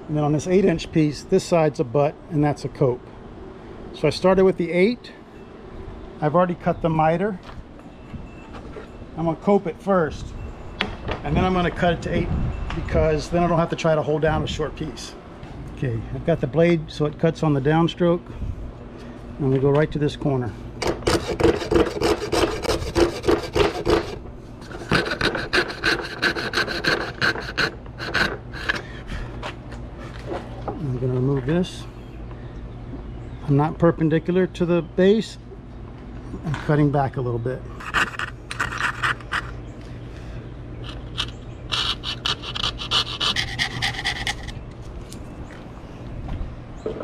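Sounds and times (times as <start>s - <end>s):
coping saw cutting wood: 20.8s - 28.9s, 37.8s - 39.5s, 40.9s - 44.6s.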